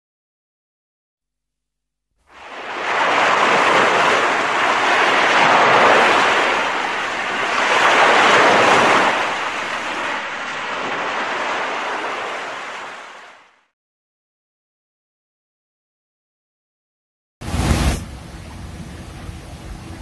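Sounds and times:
waves washing on pebble beach: 2.3 - 13.5.

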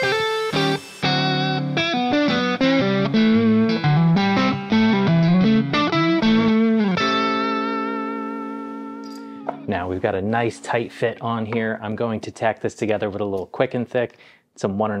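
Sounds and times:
electric guitar playing: 0.0 - 11.5.

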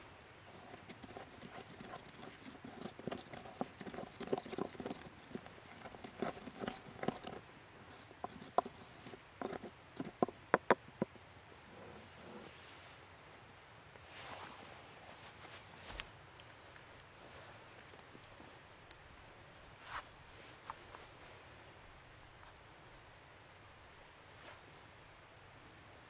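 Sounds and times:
pestle pounding in wooden mortar: 9.4 - 10.9.

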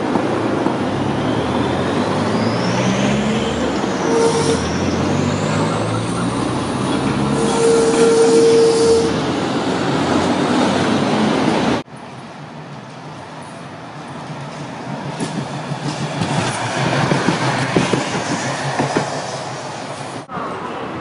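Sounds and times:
wheels rumbling on rails: 0.0 - 21.0
steady squeal: 1.0 - 6.4, 7.2 - 9.3.

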